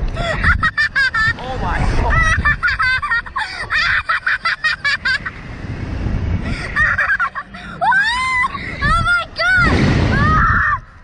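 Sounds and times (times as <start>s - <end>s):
wind rushing over microphone: 0.0s - 11.0s
people laughing: 0.2s - 5.4s, 6.5s - 7.9s.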